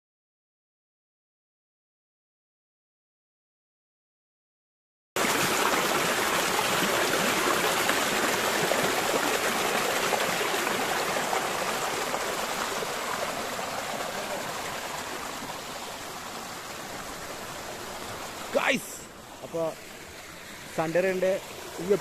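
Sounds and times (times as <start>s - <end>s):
stream water running: 5.2s - 22.0s.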